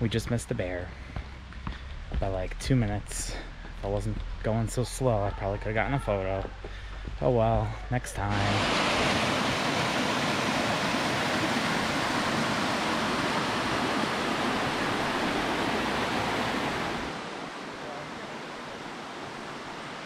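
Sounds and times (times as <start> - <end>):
waterfall rushing over rocks: 8.2 - 20.0.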